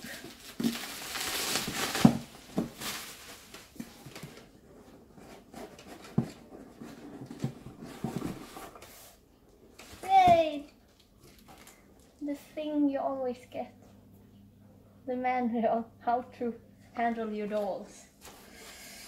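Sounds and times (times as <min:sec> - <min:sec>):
plastic bubble wrap rustling: 0:00.0 - 0:04.6, 0:09.8 - 0:12.3.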